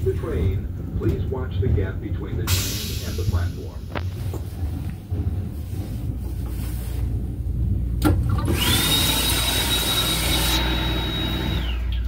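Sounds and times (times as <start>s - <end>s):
low rumble of train: 0.0s - 12.0s
water rushing hiss: 2.5s - 3.6s
high motor whine: 8.3s - 12.0s.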